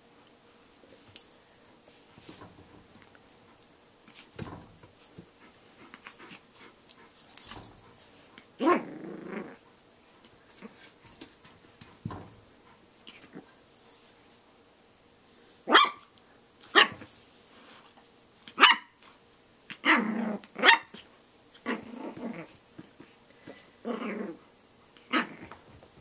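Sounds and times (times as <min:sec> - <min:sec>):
puppy growling: 0:08.6 - 0:09.7, 0:19.7 - 0:20.7, 0:21.6 - 0:22.6, 0:23.8 - 0:24.4, 0:25.1 - 0:25.6
puppy yapping: 0:15.7 - 0:16.1.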